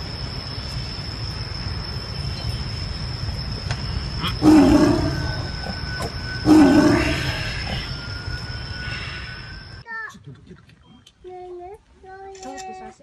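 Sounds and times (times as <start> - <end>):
tiger snarling: 4.2 - 5.8, 6.4 - 7.9.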